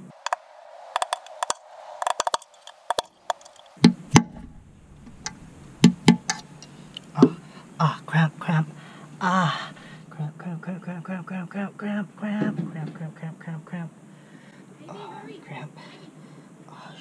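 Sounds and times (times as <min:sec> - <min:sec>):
sharp clicks and knocks: 0:01.0 - 0:07.3.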